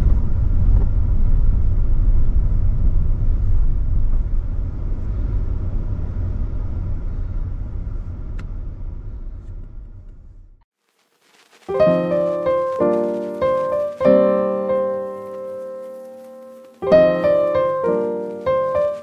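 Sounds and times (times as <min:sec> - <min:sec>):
road noise: 0:11.3 - 0:19.0.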